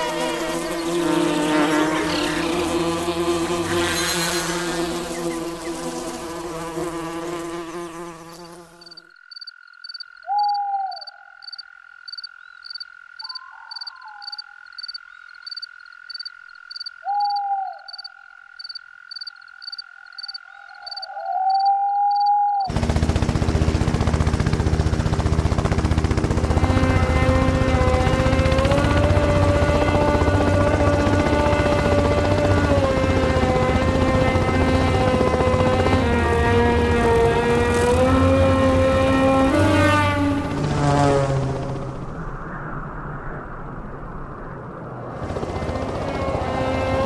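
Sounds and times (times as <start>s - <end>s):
pulsing whir of dragonfly wings: 0.0s - 9.0s, 22.7s - 42.4s, 45.1s - 47.0s
swarm of insects buzzing: 0.0s - 10.0s, 22.7s - 42.0s
cricket-like chirping: 8.3s - 22.7s
frog-like croaking: 9.0s - 22.7s
steady high drone: 22.7s - 47.0s.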